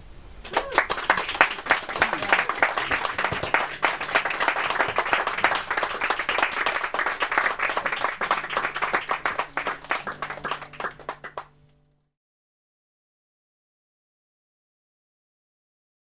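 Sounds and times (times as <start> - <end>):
audience clapping: 0.4 - 11.6.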